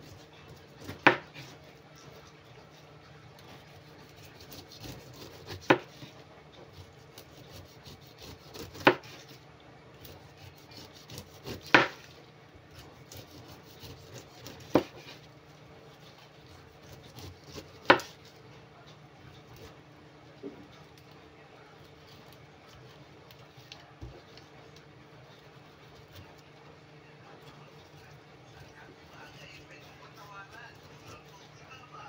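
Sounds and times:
knife scraping through rind: 3.4 - 9.4, 10.0 - 15.3, 15.9 - 18.4, 27.5 - 31.6.

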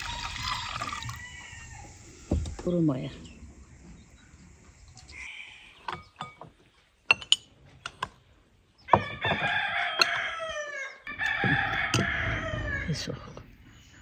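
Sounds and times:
rooster crowing: 0.0 - 2.3, 8.9 - 13.0
glassware clinking: 5.8 - 8.0.

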